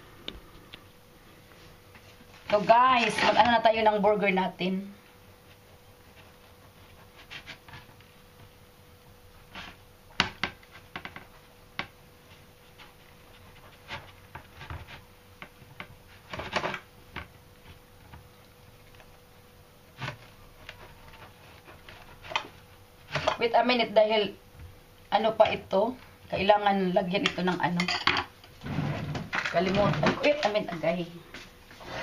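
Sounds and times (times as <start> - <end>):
knife sawing through bread: 5.6 - 8.0, 9.4 - 9.8, 12.7 - 15.1, 19.9 - 23.4, 31.7 - 32.0.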